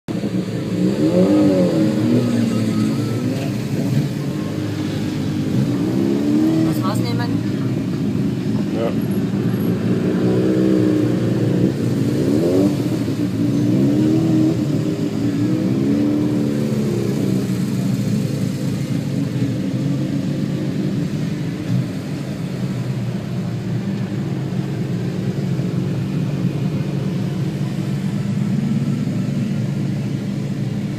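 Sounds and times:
motorcycle engines idling: 13.2s - 30.9s.

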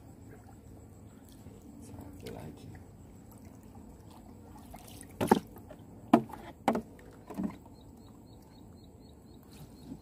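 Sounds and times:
low steady background noise: 0.0s - 10.0s
water splashing: 1.3s - 7.7s.

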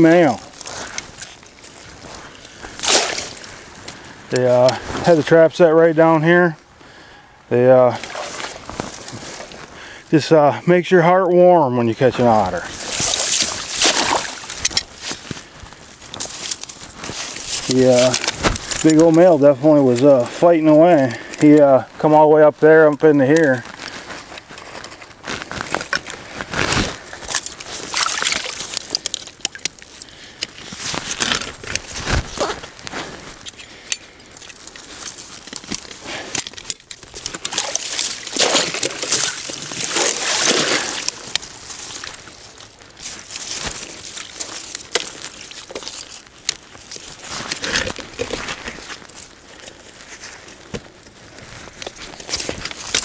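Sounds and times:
marsh water sloshing and splashing: 8.0s - 9.8s, 12.5s - 17.6s, 27.1s - 30.0s, 37.0s - 48.4s.

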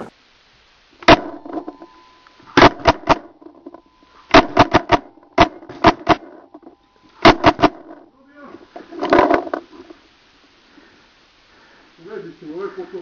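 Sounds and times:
paintball marker firing: 4.3s - 6.3s, 7.2s - 8.0s.

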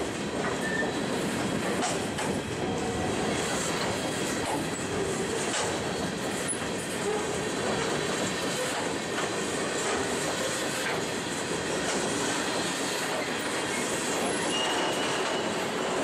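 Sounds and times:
train wheels rumbling on track: 0.0s - 16.0s
high wheel squeals: 13.7s - 16.0s.

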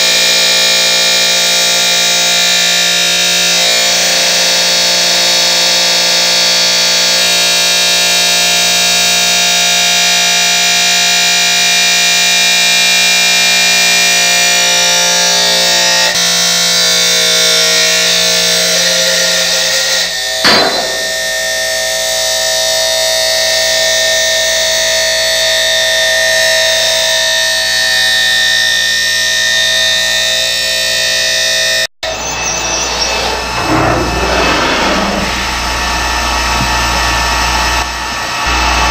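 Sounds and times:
uneven machine sound: 20.4s - 21.6s, 32.0s - 36.3s
cut-off disc screeching: 20.5s - 21.5s, 32.0s - 36.0s.

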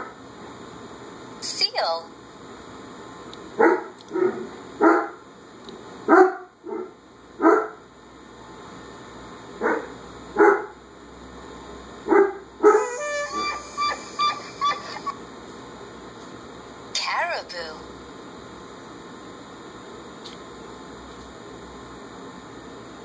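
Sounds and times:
dog barking: 3.6s - 5.2s, 6.1s - 7.8s, 9.6s - 10.8s, 12.1s - 13.6s.

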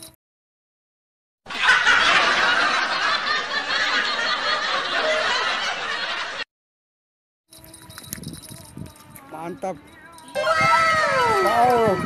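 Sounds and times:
canned laughter: 1.5s - 6.4s.

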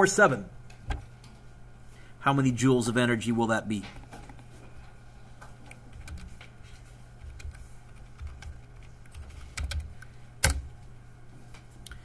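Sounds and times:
steady low hum: 0.0s - 12.0s
keyboard keys clicking: 7.2s - 10.7s.

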